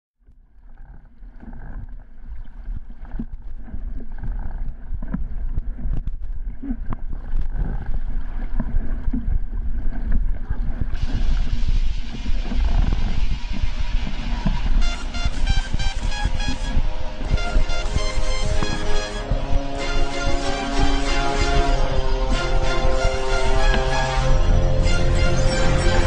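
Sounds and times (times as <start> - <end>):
water splashing along boat hull: 0.5 - 26.0
wind buffeting microphone: 3.8 - 26.0.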